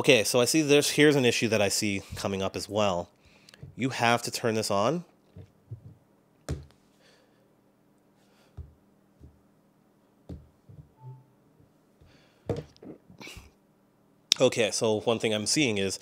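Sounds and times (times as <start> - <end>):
soft charging tone: 11.0 - 11.3.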